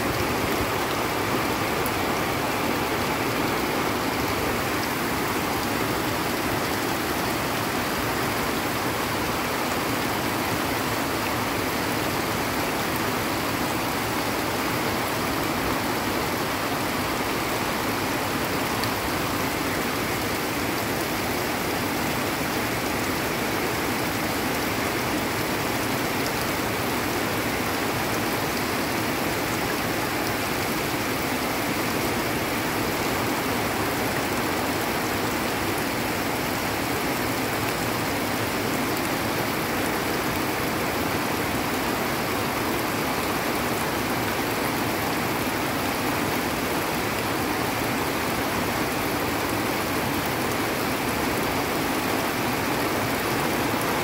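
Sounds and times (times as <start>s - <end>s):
heavy rain: 0.0s - 54.0s
water rushing down a channel: 0.0s - 54.0s.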